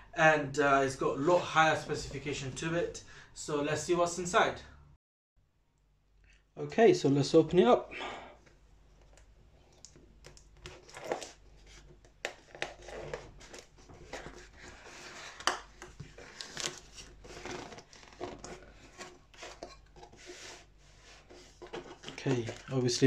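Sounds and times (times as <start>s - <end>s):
cardboard box being opened: 10.7s - 22.8s.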